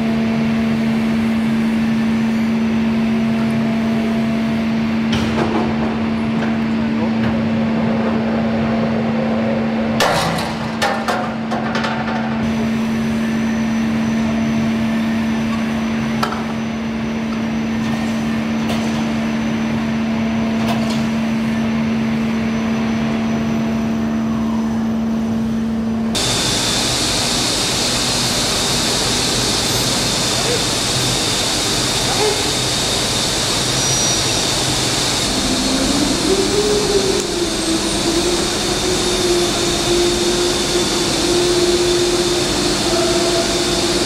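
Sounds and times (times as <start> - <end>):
steady machine hum: 12.2 - 44.0
loud steady hiss: 26.2 - 44.0.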